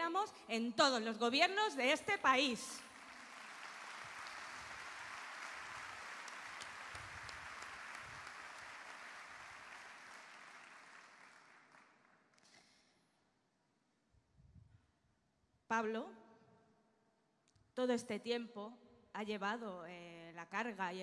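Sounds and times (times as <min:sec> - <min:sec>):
crowd applauding: 0:02.6 - 0:12.6.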